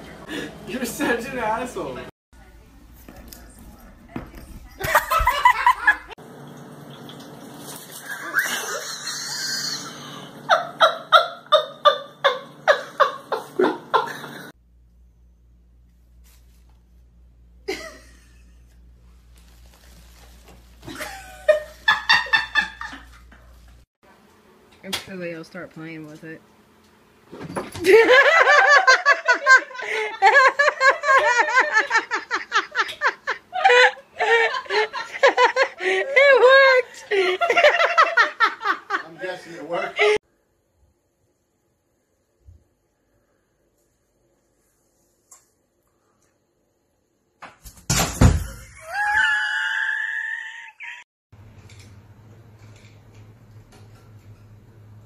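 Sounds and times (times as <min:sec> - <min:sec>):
person laughing hard: 0:08.1 - 0:14.5, 0:27.8 - 0:40.2.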